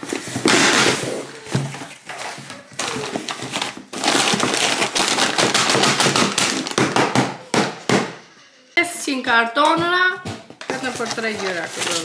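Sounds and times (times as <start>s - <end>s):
cardboard parcel being opened: 0.0s - 7.0s, 10.6s - 12.0s.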